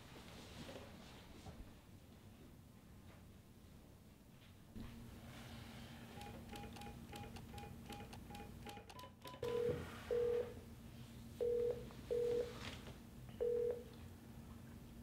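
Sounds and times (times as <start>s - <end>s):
phone keypad beeps: 6.2s - 10.5s
phone ringing tone beeps: 6.2s - 10.6s, 11.4s - 12.5s, 13.4s - 13.9s.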